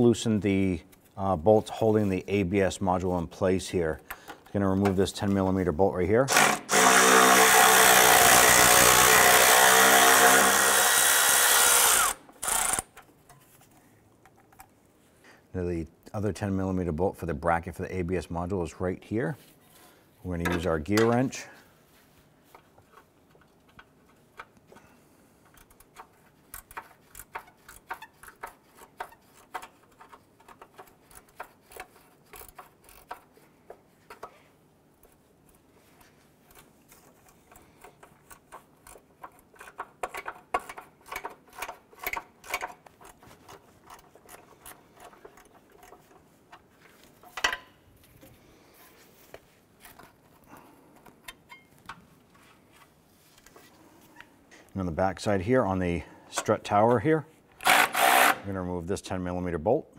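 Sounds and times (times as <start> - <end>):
ratcheting wrench clicking: 25.4 - 33.4, 36.5 - 46.2.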